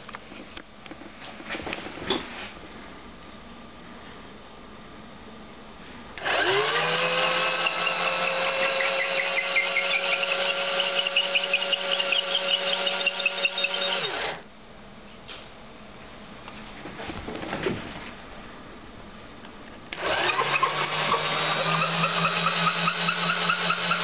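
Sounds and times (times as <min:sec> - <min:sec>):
cordless drill motor running: 0:06.2 - 0:14.4, 0:20.0 - 0:24.0.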